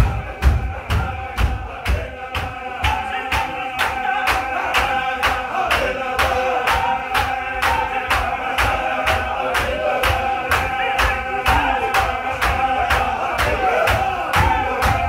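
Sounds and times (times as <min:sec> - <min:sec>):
men chanting: 0:00.0 - 0:15.0
rhythmic beat of moving feet: 0:00.0 - 0:15.0.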